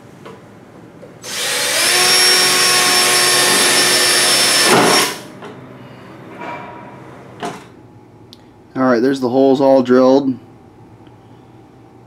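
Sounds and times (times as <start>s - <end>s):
cordless drill boring metal: 1.2s - 5.3s.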